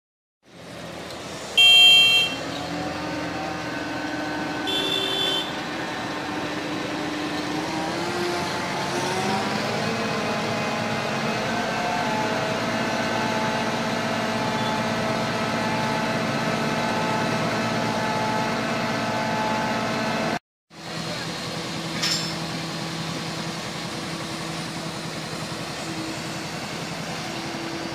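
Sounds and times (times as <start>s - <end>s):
crane engine running: 0.5s - 27.9s
vehicle horn blasts: 1.6s - 2.5s, 4.6s - 5.6s.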